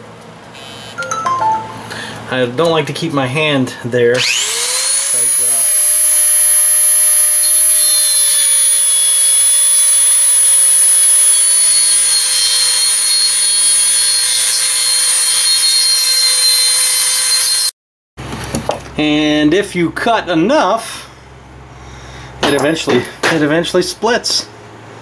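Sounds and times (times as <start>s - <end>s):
rotary tool cutting metal: 4.2s - 17.7s.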